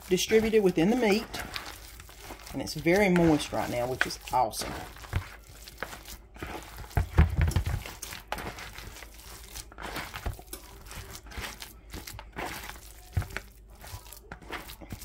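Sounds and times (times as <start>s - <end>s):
wet squelching of meat mixture: 0.0s - 15.0s.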